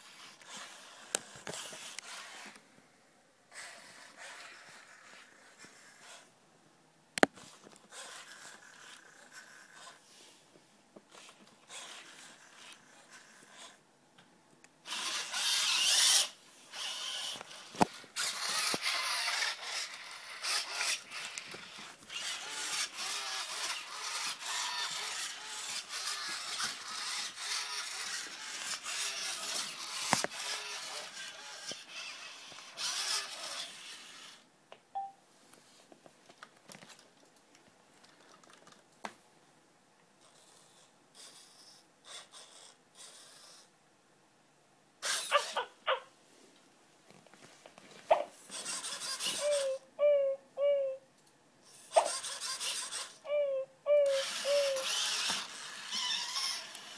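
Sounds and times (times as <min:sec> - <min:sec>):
servo motors whirring: 0:14.8 - 0:34.4, 0:40.2 - 0:43.7, 0:51.7 - 0:53.2, 0:54.0 - 0:56.9.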